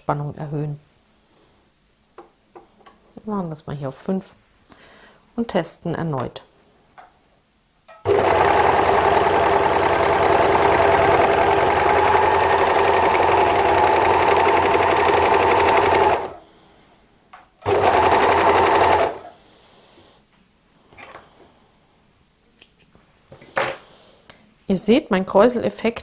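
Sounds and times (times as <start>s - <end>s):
overlock sewing machine running: 8.1s - 16.4s, 17.6s - 19.3s.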